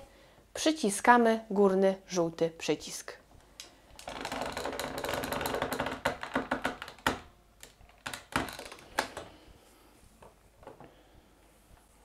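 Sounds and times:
plastic press creaking and clicking: 0:03.6 - 0:09.4.

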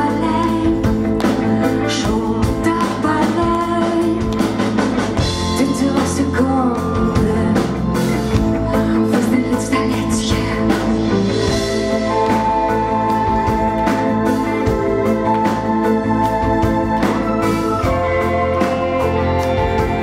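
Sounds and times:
woman singing: 0:00.0 - 0:12.5
bass guitar: 0:00.0 - 0:20.0
drum kit: 0:00.0 - 0:20.0
electric guitar: 0:00.0 - 0:20.0
keyboards: 0:00.0 - 0:20.0.

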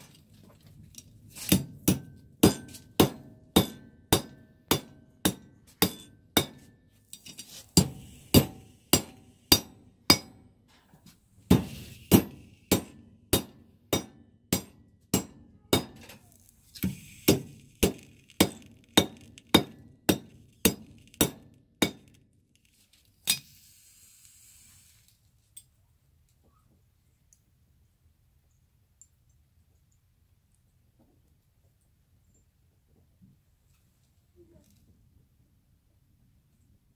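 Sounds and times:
hammer striking iron on anvil: 0:01.5 - 0:06.8, 0:07.8 - 0:10.5, 0:11.5 - 0:16.1, 0:16.8 - 0:22.1
faint hiss: 0:16.3 - 0:17.9, 0:23.3 - 0:25.6.

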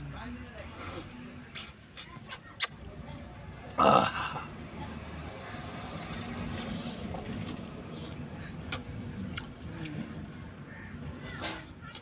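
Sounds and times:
man burping: 0:03.8 - 0:04.5.

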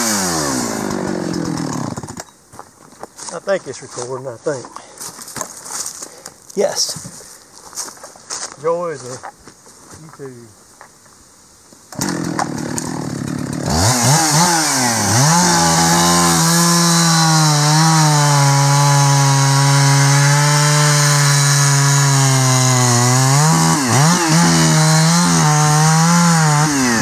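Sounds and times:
chainsaw sawing wood: 0:00.0 - 0:02.2, 0:11.9 - 0:27.0.

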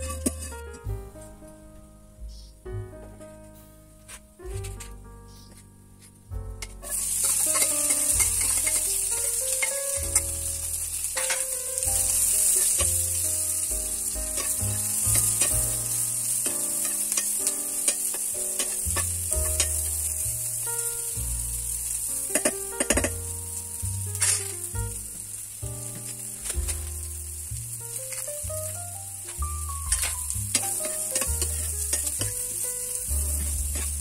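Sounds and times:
vegetables sizzling in hot oil: 0:00.0 - 0:00.6, 0:06.6 - 0:34.0
metal spoon scraping a pan: 0:00.0 - 0:00.7, 0:06.6 - 0:20.0, 0:24.2 - 0:24.6, 0:29.6 - 0:34.0.

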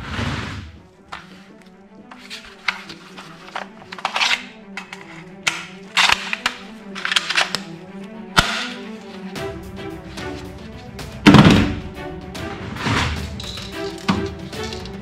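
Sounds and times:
hard plastic clicks and clacks: 0:02.7 - 0:07.7.

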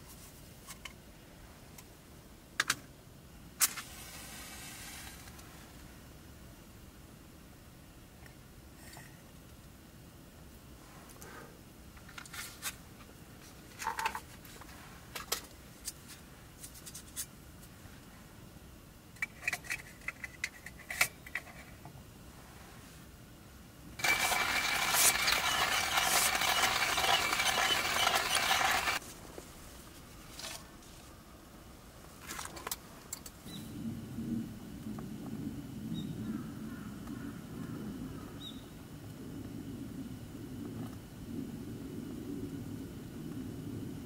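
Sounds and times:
loud rushing hiss: 0:03.7 - 0:05.3.

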